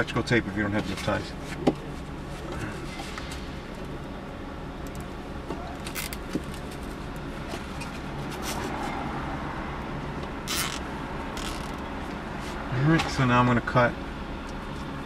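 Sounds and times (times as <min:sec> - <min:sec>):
zip tie zipping rasps: 0:10.5 - 0:10.8.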